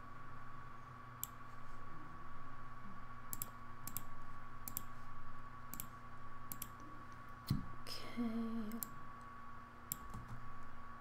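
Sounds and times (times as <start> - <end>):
faint electrical hum: 0.0 - 11.0
computer mouse clicking: 3.3 - 4.9, 5.7 - 5.9, 6.5 - 6.8, 9.9 - 10.4.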